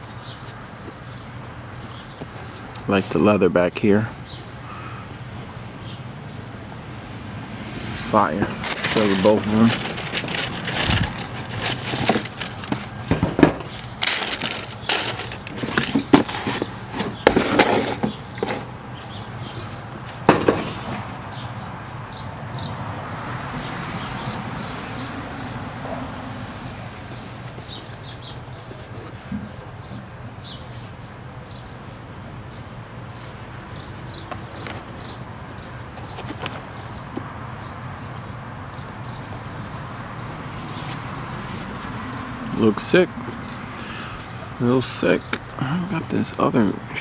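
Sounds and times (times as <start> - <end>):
low background noise: 0.0 - 47.0
sneakers being handled: 8.3 - 21.5, 33.3 - 35.3
tissue paper crinkling: 8.6 - 16.6.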